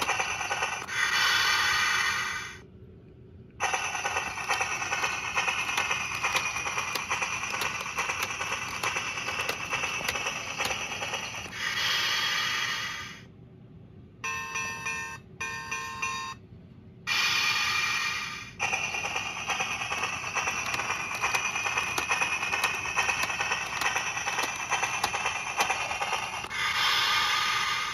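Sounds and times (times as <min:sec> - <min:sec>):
toy train motor whir: 0:00.0 - 0:02.6, 0:03.6 - 0:13.2, 0:17.1 - 0:27.9
wheels clicking: 0:03.6 - 0:11.6, 0:18.6 - 0:26.5.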